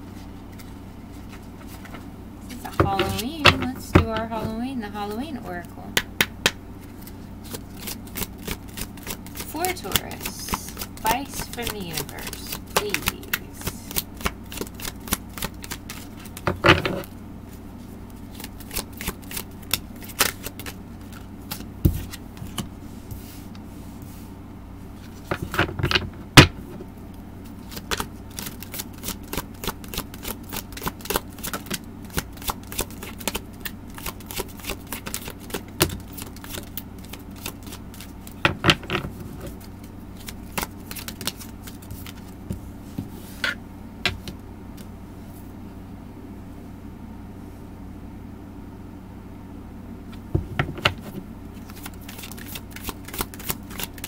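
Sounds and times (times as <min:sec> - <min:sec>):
cards being shuffled: 0:00.2 - 0:04.6, 0:06.4 - 0:17.1, 0:18.0 - 0:23.4, 0:25.0 - 0:26.1, 0:27.4 - 0:44.9, 0:50.1 - 0:54.0.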